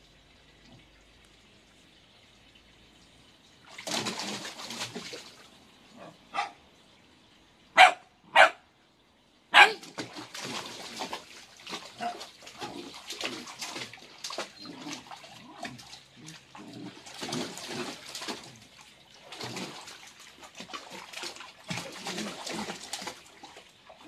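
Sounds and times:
water splashing: 0:00.0 - 0:06.5, 0:09.6 - 0:24.0
puppy barking: 0:06.0 - 0:06.6, 0:07.8 - 0:08.6, 0:09.5 - 0:09.8.

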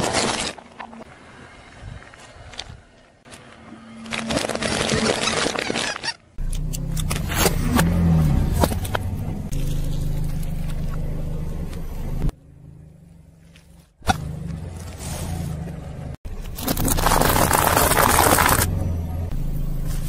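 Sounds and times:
car engine running slowly: 0:06.4 - 0:16.6, 0:18.4 - 0:20.0
can crunching under tyre: 0:16.5 - 0:18.7.

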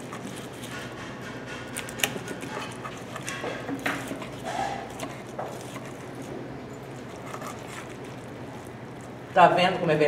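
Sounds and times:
metal spoon scraping on dish: 0:00.2 - 0:08.2.

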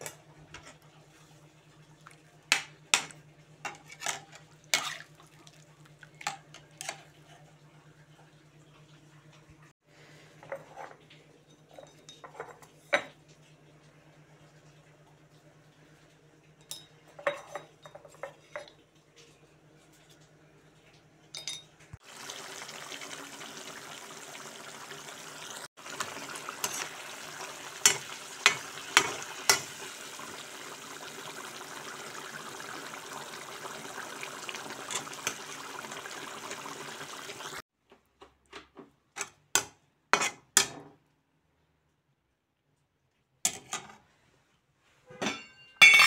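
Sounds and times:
gravy bubbling and sizzling: 0:00.0 - 0:21.2, 0:21.9 - 0:37.6
spatula scraping pan: 0:03.7 - 0:05.2, 0:26.0 - 0:29.9
metal spoon clinking against pan: 0:45.2 - 0:46.0.

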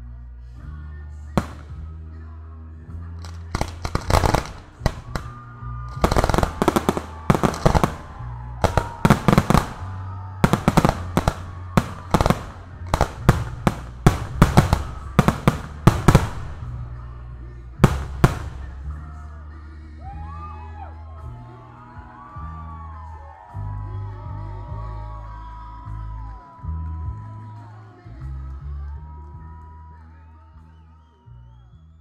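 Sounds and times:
music with deep bass: 0:00.0 - 0:32.0
firework shells bursting: 0:03.2 - 0:09.9.

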